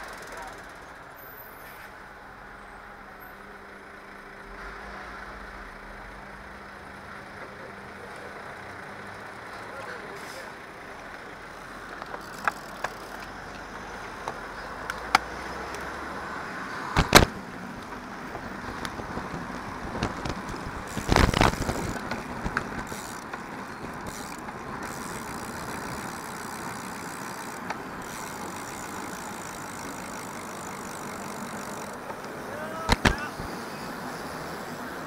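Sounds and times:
passing motor traffic: 0.0s - 35.0s
wind and road noise: 0.0s - 35.0s
sharp clicks: 31.9s - 33.4s.

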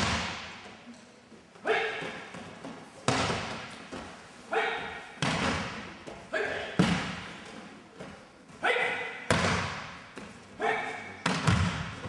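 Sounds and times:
body slapping on mats: 2.1s - 4.2s
person shouting: 4.5s - 5.0s.

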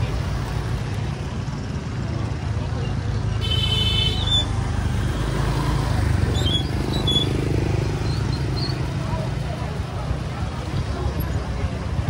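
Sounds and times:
people talking: 0.0s - 4.8s, 8.1s - 12.0s
scooter engines passing: 0.0s - 12.0s.

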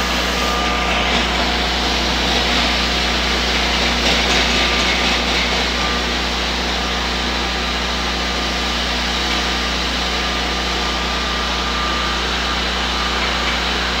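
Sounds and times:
dust extractor suction: 0.0s - 14.0s
floor grinder grinding concrete: 0.0s - 14.0s.

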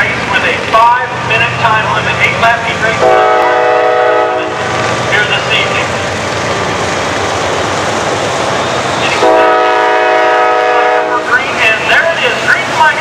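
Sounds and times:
train passing: 0.0s - 13.0s
train air horn blast: 3.0s - 4.6s, 9.2s - 11.3s.

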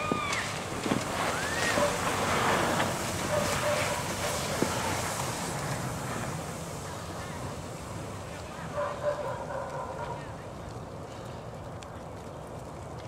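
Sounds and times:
wind rushing on microphone: 0.0s - 8.7s.

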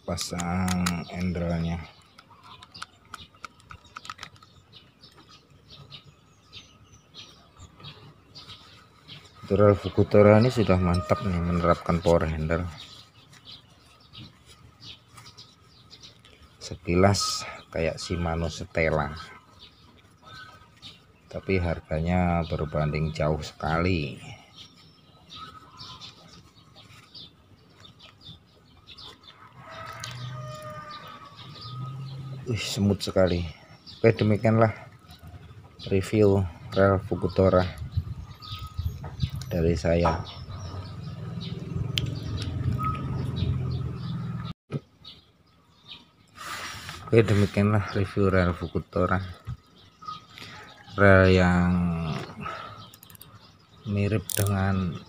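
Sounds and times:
birds chirping: 0.0s - 55.0s
metal reel parts clicking: 52.9s - 53.3s, 54.2s - 54.6s.

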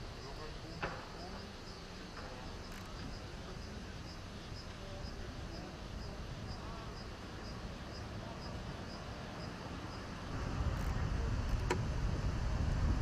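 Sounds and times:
insect chirping: 0.0s - 10.3s
low outdoor rumble: 0.0s - 13.0s.

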